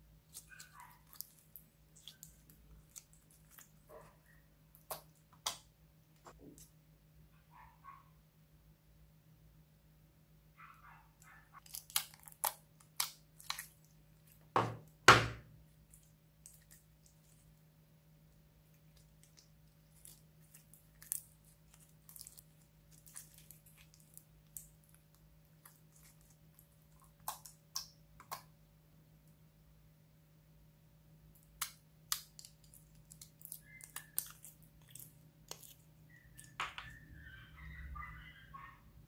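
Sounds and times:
slime squeaks: 0:00.2 - 0:05.5, 0:32.3 - 0:38.8
slime squelching and crackling: 0:00.2 - 0:06.7, 0:11.2 - 0:14.5, 0:15.6 - 0:17.6, 0:18.6 - 0:28.5, 0:31.4 - 0:37.0.

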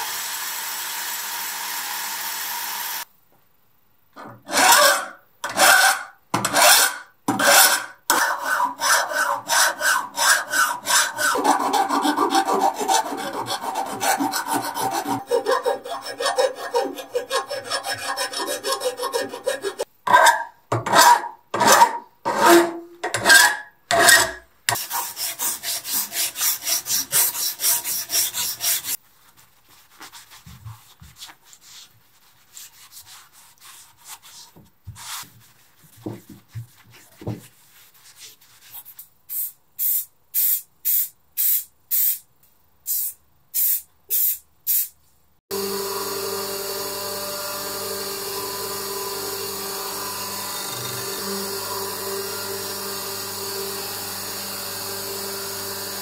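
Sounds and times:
hand file rasping on steel: 0:04.5 - 0:29.0.

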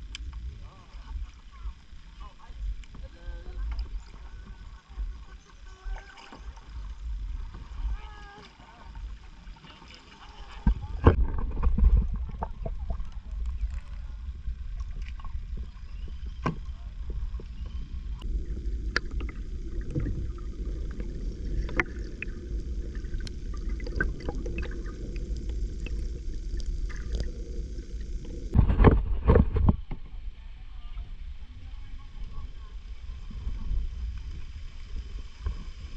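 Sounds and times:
bubbling: 0:00.0 - 0:30.0
water splashes: 0:00.0 - 0:30.2
underwater low rumble: 0:00.0 - 0:35.9
underwater clicks: 0:10.6 - 0:30.1.

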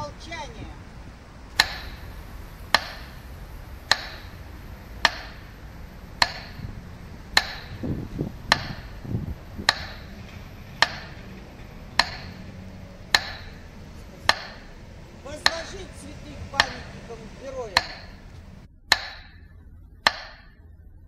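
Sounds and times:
metronome ticking: 0:00.0 - 0:20.7
low rumble: 0:00.0 - 0:21.0.

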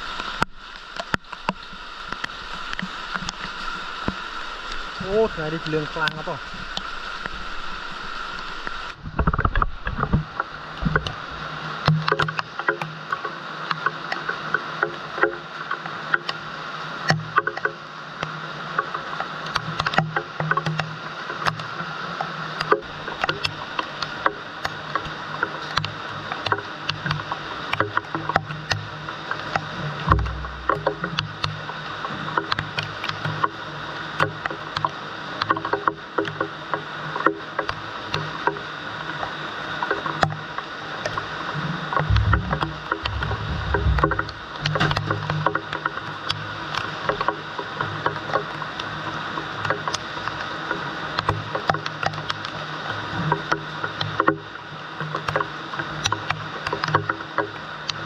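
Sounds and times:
sharp drips and taps: 0:00.2 - 0:07.4, 0:08.4 - 0:16.4, 0:17.0 - 0:33.6, 0:34.2 - 0:41.2, 0:42.0 - 0:48.9, 0:55.0 - 0:58.0
water splashing from pipe: 0:18.7 - 0:34.8, 0:40.8 - 0:47.5
rain falling: 0:28.5 - 0:34.2, 0:40.1 - 0:47.0
steady low hum: 0:29.7 - 0:31.8, 0:41.6 - 0:45.5
plastic pipes knocking: 0:30.1 - 0:31.4, 0:42.1 - 0:45.0.

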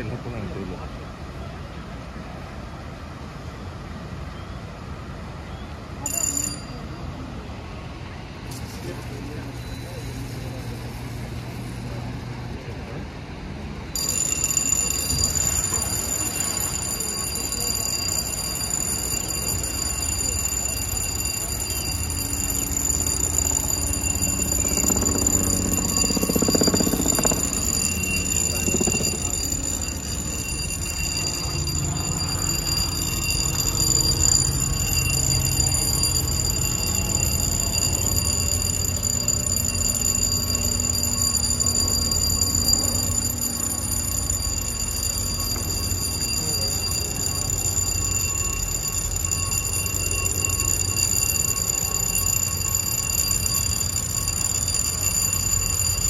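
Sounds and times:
high-pitched electronic alarm: 0:14.0 - 0:56.0.

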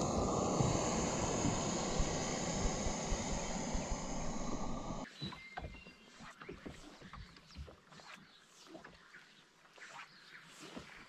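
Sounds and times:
camp stove hissing: 0:00.0 - 0:05.0.

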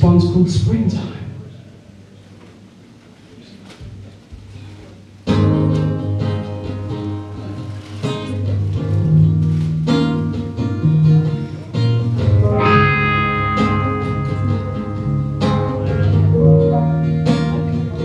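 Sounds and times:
bass line: 0:08.5 - 0:18.0
electric guitars picking notes: 0:08.6 - 0:18.0.

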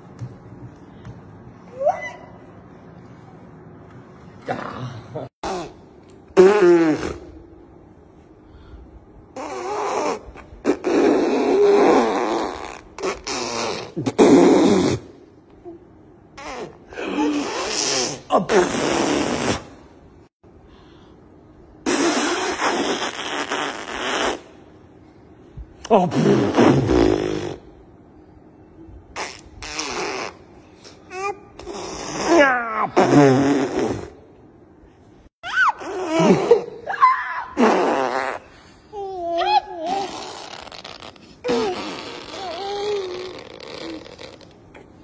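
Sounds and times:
buzzing lip trills: 0:09.3 - 0:15.2, 0:21.8 - 0:24.7, 0:29.1 - 0:34.2, 0:37.6 - 0:38.7, 0:39.8 - 0:45.0
baby babbling: 0:38.9 - 0:40.4, 0:41.5 - 0:44.0.

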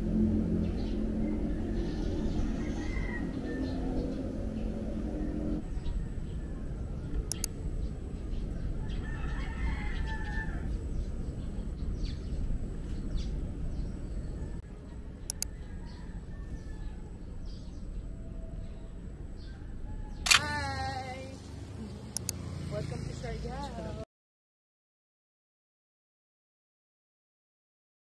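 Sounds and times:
steady low rumble: 0:00.0 - 0:22.4
rooster crowing: 0:01.6 - 0:04.2, 0:08.8 - 0:10.8, 0:15.3 - 0:17.4
sharp click: 0:07.3 - 0:07.6, 0:15.3 - 0:15.5, 0:20.2 - 0:20.5, 0:22.2 - 0:22.4.

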